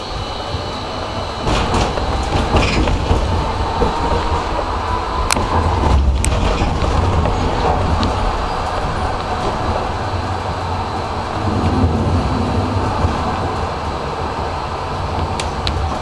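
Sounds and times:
tram wheels rumbling on rails: 0.0 - 16.0.

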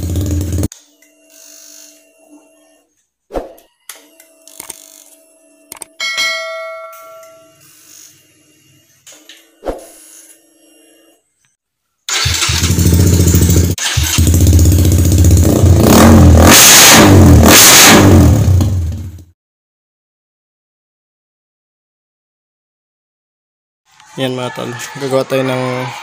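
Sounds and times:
motorcycle engine starting and revving: 0.0 - 0.7, 12.1 - 19.3
short chime: 6.0 - 7.7.

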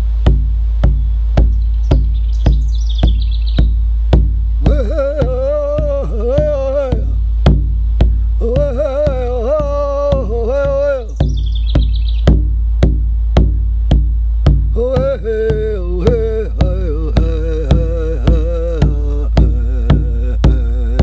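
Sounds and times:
steady low hum: 0.0 - 21.0
man chanting: 4.6 - 7.6, 8.2 - 11.4, 14.6 - 21.0.

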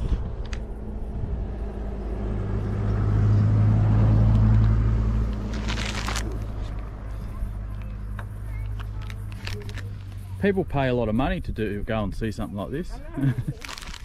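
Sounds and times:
low humming rumble: 0.0 - 10.4.

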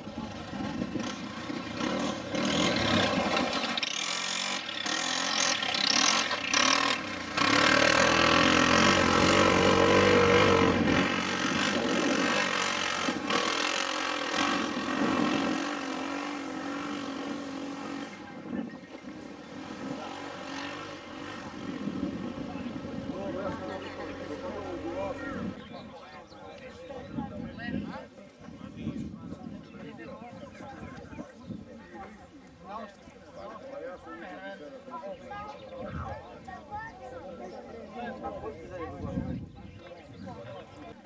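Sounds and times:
off-road vehicle engines revving: 0.0 - 27.8.

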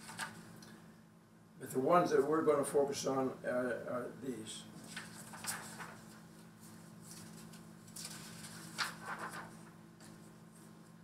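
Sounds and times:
paper rustling: 0.0 - 0.4, 4.8 - 11.0
faint steady hum: 0.0 - 11.0.

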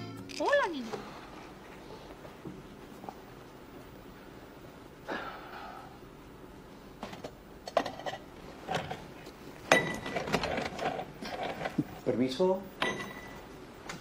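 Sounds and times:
glass ringing clink: 9.7 - 10.1, 12.8 - 13.4.

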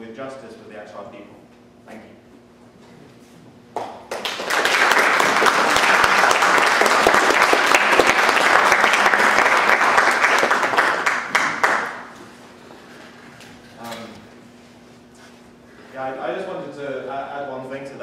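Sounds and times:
audience applauding: 3.8 - 12.2.

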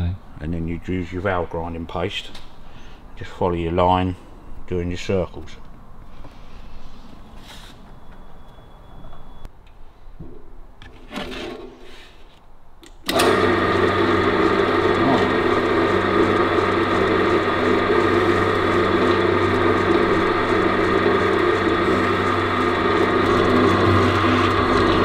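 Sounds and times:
pillar drill motor running: 13.1 - 25.0.

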